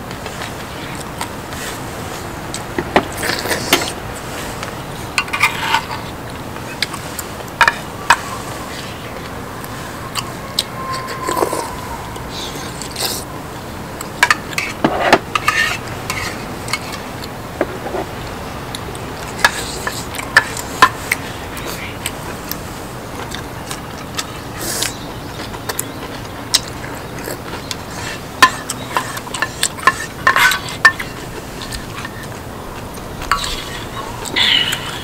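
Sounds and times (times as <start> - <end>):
steady background hiss: 0.0 - 35.0
utensils clicking and scraping dishes: 4.6 - 6.1, 14.0 - 18.1, 23.2 - 35.0.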